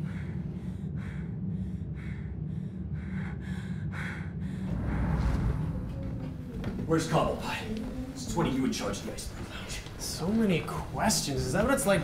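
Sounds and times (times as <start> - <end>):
person breathing hard: 0.0 - 5.9
steady low hum: 0.0 - 12.0
rush of sound: 4.6 - 6.6.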